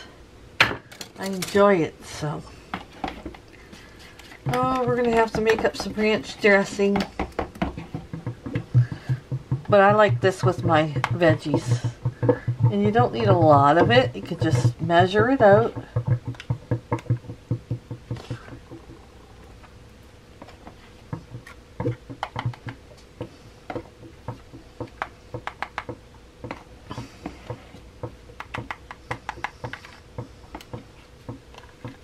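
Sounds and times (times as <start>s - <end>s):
spoon tapping plastic containers: 4.1s - 19.0s, 20.4s - 32.0s.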